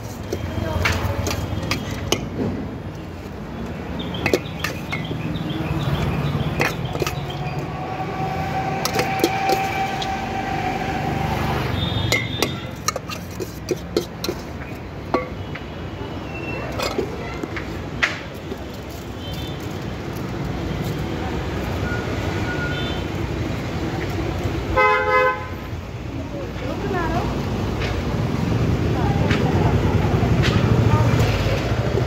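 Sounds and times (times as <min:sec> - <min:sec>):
low street rumble: 0:00.0 - 0:32.0
spoon clinking against steel bowl: 0:00.1 - 0:02.3, 0:04.1 - 0:05.2, 0:06.6 - 0:07.4, 0:12.1 - 0:15.4.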